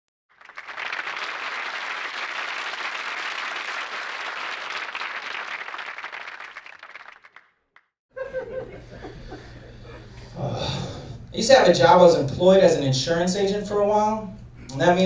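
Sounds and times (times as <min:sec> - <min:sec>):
audience applause: 0:00.3 - 0:07.5.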